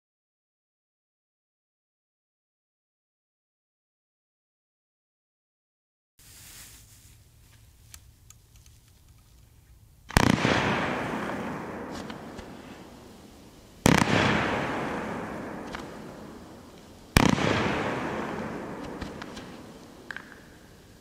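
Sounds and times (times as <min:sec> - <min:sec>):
firework hissing: 0:06.2 - 0:07.4, 0:10.1 - 0:21.0
firework pops: 0:10.1 - 0:21.0.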